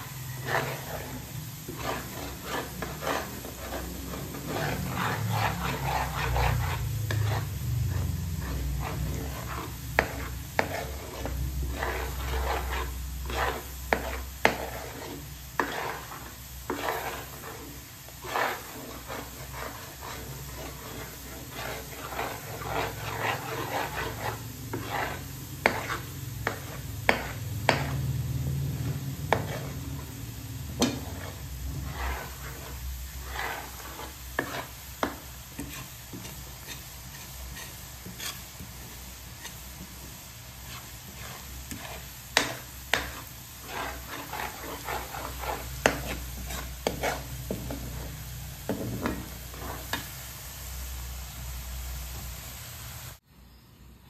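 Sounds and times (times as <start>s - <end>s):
metal spatula scraping a wok: 0.0s - 51.8s
oil sizzling: 0.0s - 53.2s.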